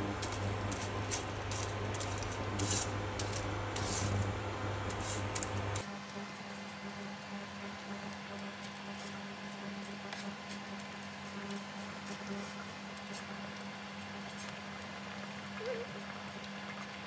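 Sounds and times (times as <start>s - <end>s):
water bubbling in a pan: 0.0s - 5.9s, 13.4s - 17.0s
steady low hum: 0.0s - 7.9s.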